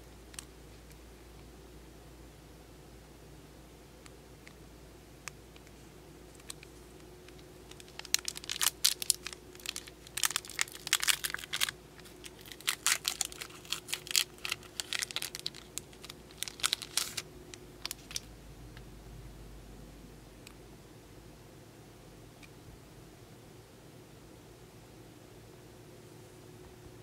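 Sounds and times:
foil wrapper tearing and crinkling: 7.7s - 18.2s.

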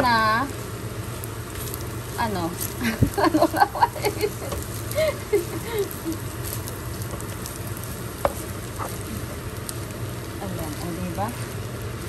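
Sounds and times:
rice sizzling in a pan: 0.0s - 12.0s
wooden spatula stirring: 4.0s - 9.9s.

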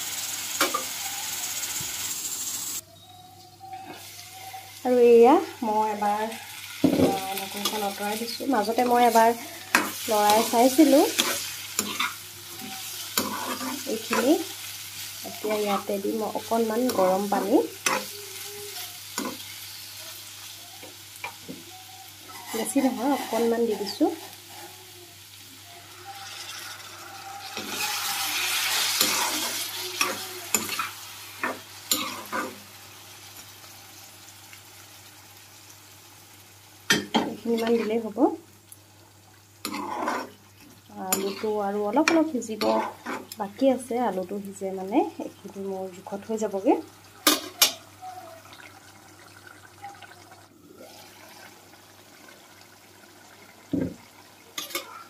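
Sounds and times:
curry sizzling in a pan: 0.0s - 2.8s, 3.7s - 55.0s
metal spatula scraping a pan: 6.0s - 14.5s, 15.1s - 19.8s, 22.2s - 24.8s, 26.0s - 32.7s, 39.6s - 40.4s, 41.1s - 43.4s
water pouring into hot pan: 48.4s - 54.6s.

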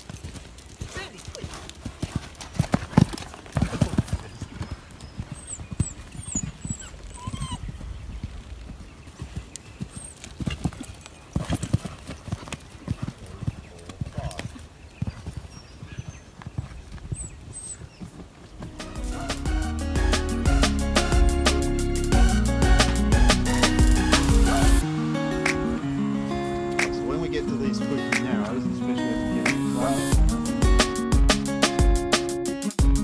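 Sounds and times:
horse hoofbeats on sand: 0.0s - 18.8s.

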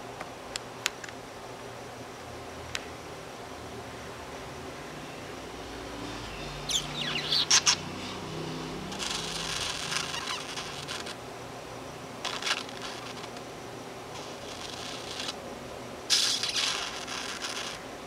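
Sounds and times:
budgerigar scratchy chatter: 6.3s - 8.2s, 8.9s - 11.2s, 12.2s - 13.4s, 14.2s - 15.4s, 16.1s - 17.8s
budgerigar clicks and chirps: 6.7s - 7.9s.

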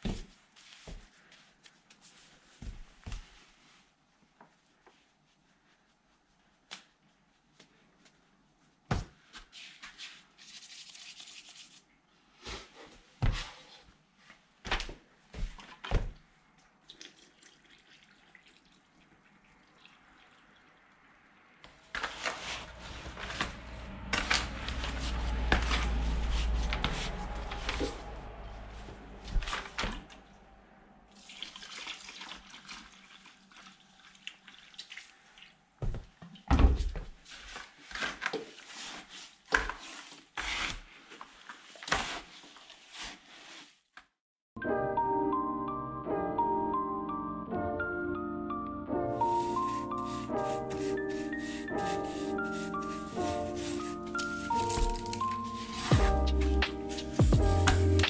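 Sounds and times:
water pouring into bucket: 10.5s - 11.8s, 16.9s - 20.9s, 31.1s - 35.5s
deep rumble: 22.6s - 31.0s.

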